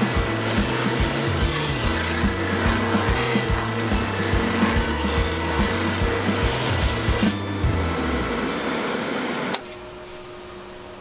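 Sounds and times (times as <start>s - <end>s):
wood rasping against spinning wheel: 0.0s - 7.4s
background music with steady beat: 0.0s - 8.4s.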